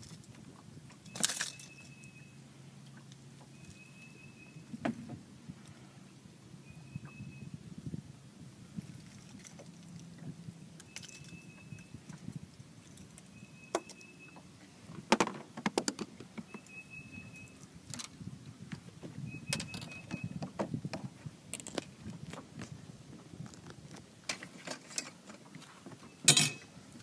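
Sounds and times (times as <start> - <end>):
faint high beeps: 1.1 - 2.4, 3.5 - 4.7, 6.6 - 7.6, 10.8 - 12.1, 13.3 - 14.5, 16.4 - 17.6, 19.2 - 20.4
metal tools clinking and clattering: 26.2 - 26.7.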